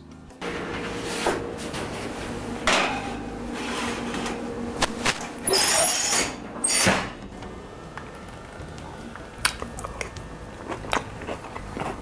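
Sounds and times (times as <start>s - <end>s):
high metallic scrape: 5.5s - 6.9s.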